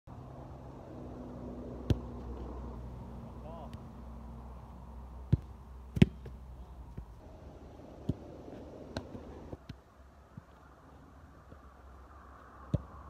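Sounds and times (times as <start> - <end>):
footballs kicked and bouncing: 1.8 - 2.5, 3.2 - 7.2, 8.0 - 10.6, 12.6 - 13.0.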